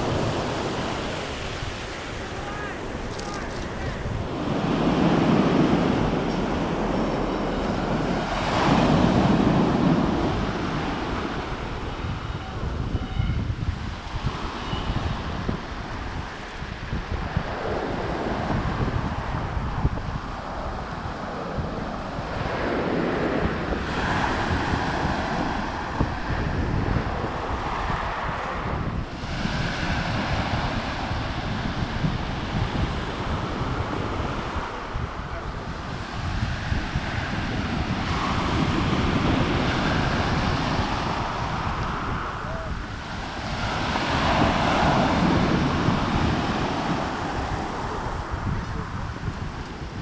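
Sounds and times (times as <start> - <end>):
waves washing on pebble beach: 0.0 - 12.0, 35.8 - 50.0
wind buffeting microphone: 0.0 - 50.0.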